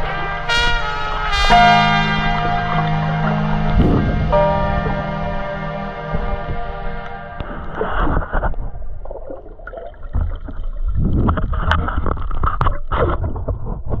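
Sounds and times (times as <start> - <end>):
underwater gurgling: 6.8 - 14.0.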